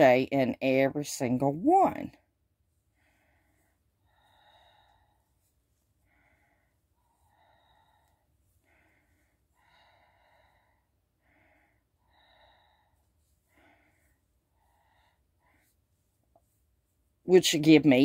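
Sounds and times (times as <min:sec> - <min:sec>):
faint breathing: 0:02.7 - 0:17.2.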